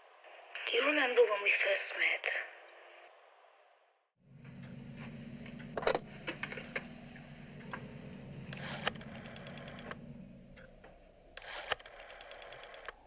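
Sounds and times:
low steady hum: 4.2 - 13.0
telephone bell ringing: 11.4 - 12.9.

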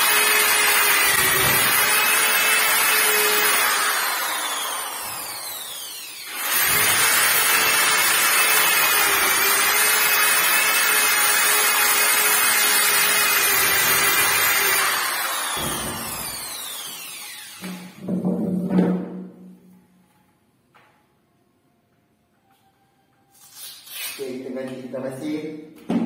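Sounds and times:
angle grinder motor whine: 0.0 - 7.0, 13.5 - 18.0.

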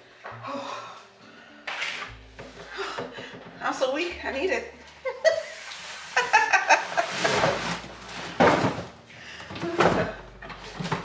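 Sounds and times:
woman laughing: 5.0 - 7.6
cardboard scraping and rustling: 5.8 - 9.0.

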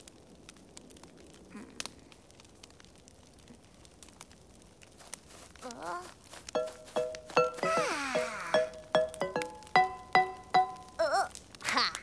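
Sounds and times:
log fire crackling: 0.0 - 12.0.

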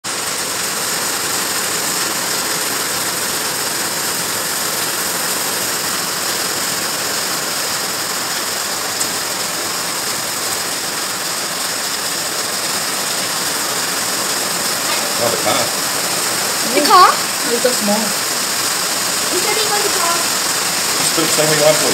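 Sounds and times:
heavy rain and hail: 0.0 - 21.9.

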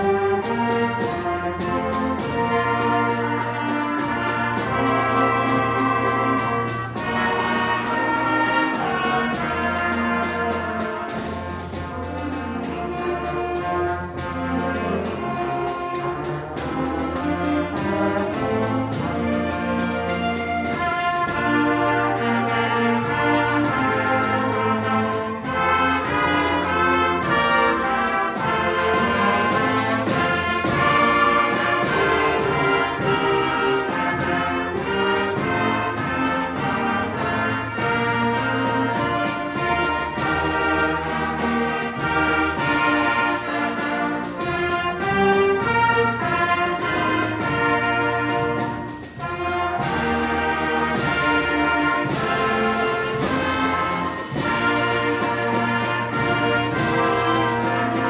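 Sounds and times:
brass band playing: 0.0 - 58.0
percussion strikes: 0.0 - 58.0.

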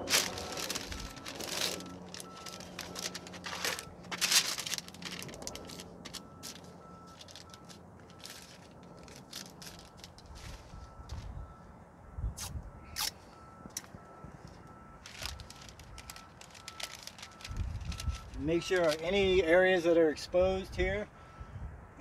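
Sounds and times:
paper crinkling and crackling: 0.0 - 11.3, 14.4 - 19.5.

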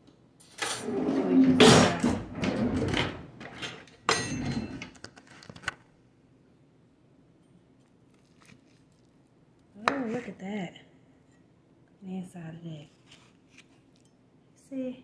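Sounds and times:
rustling and clattering of objects: 0.5 - 5.8.

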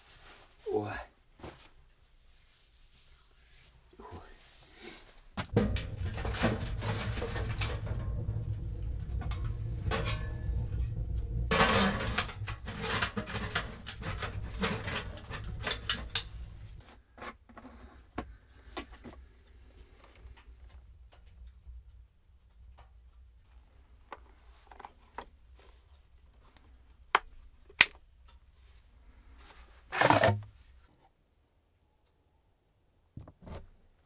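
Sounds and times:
handling rustling and knocks: 1.4 - 2.0, 5.4 - 19.3, 22.4 - 30.9
wood fire crackling in stove: 5.3 - 16.8, 17.8 - 24.0.

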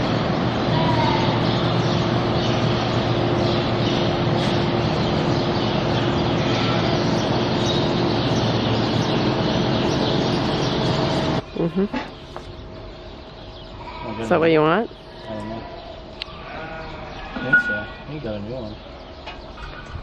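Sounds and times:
fan air rushing: 0.0 - 11.5
faint fan hum: 0.0 - 20.0.

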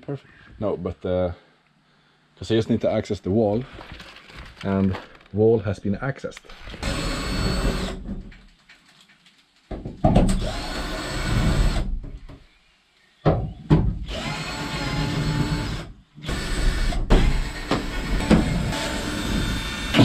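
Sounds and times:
power drill running: 6.6 - 8.0, 10.3 - 11.9, 14.1 - 20.0.

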